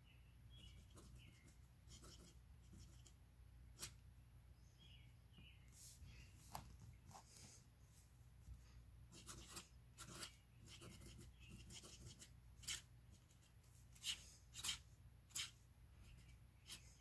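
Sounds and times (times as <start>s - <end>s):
pen nib scratching paper: 0.6s - 3.2s, 9.1s - 17.0s.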